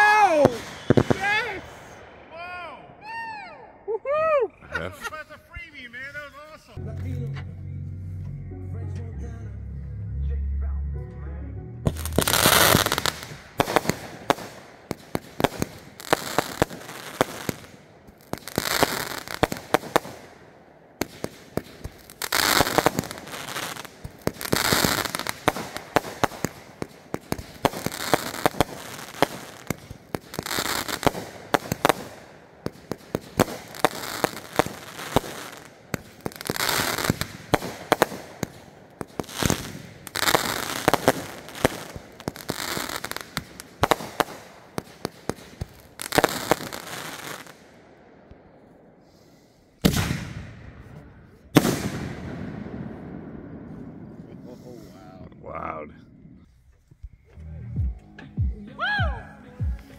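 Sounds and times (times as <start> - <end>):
fireworks bangs and crackling: 0.0 - 3.4, 11.8 - 55.0
hissing crackle: 11.9 - 20.4, 21.0 - 47.8.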